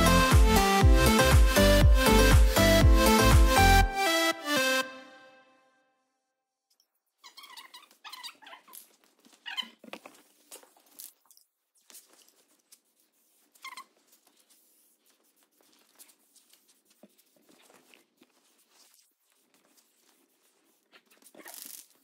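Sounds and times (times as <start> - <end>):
paper handling: 8.8 - 22.0
tape screeching off roll: 20.9 - 22.0.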